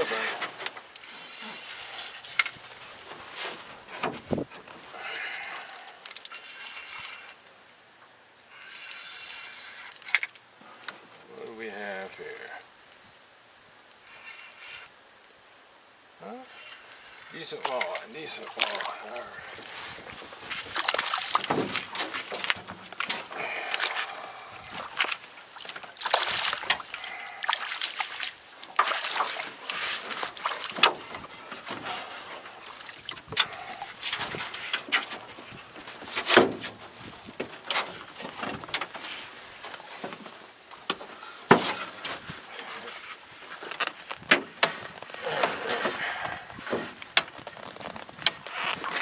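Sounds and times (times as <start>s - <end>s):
water sloshing and splashing: 16.7s - 43.5s.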